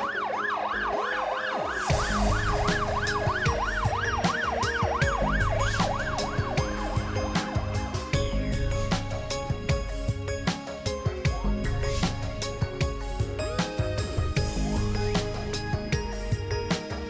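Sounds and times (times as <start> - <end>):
fire engine siren yelp: 0.0 - 7.8
background music with steady beat: 0.0 - 17.0.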